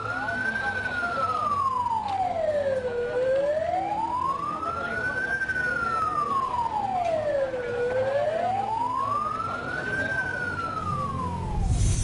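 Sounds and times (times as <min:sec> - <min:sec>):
crowd voices: 0:00.0 - 0:12.0
emergency vehicle siren wailing: 0:00.0 - 0:12.0
deep low rumble: 0:10.8 - 0:12.0.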